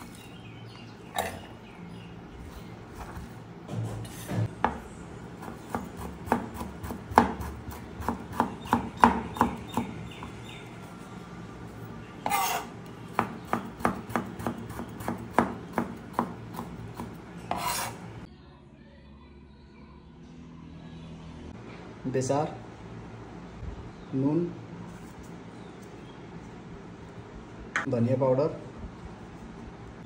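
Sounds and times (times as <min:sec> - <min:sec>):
knife chopping on cutting board: 0:05.4 - 0:10.3, 0:12.2 - 0:18.0.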